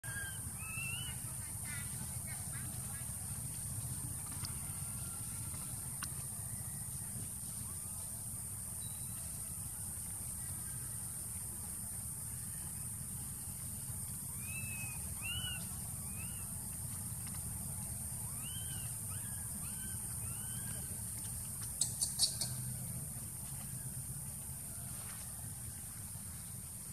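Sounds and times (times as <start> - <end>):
baby monkey squeaky calls: 14.3 - 16.4, 18.3 - 20.9, 21.8 - 22.6.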